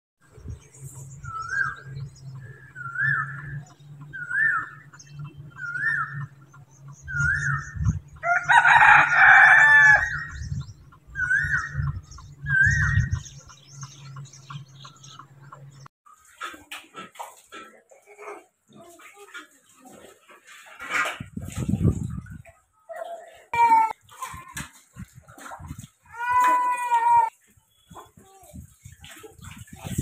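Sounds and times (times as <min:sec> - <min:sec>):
rooster crowing: 0:08.2 - 0:10.4.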